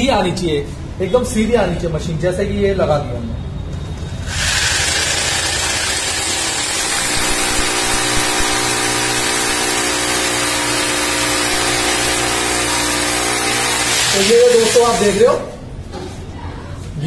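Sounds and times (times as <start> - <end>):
hammer drill boring into masonry: 4.1 - 15.2.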